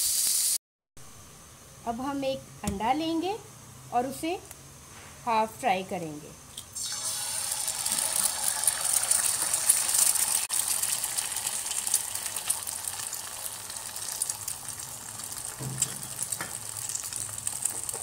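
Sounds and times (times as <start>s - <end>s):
egg sizzling in hot oil: 0.0s - 0.6s, 6.7s - 18.0s.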